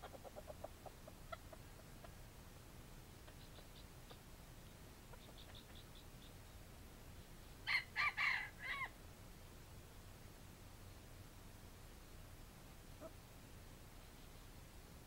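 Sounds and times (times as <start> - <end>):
soft clucks: 0.0 - 2.2, 3.2 - 6.1
rooster crowing: 7.6 - 9.0.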